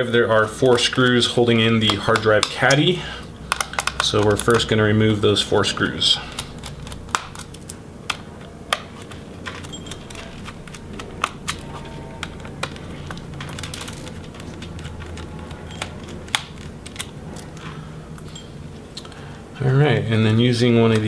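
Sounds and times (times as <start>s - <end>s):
screwdriver clicks and clinks: 9.6s - 10.3s, 13.4s - 14.2s, 15.6s - 16.1s, 18.2s - 18.6s.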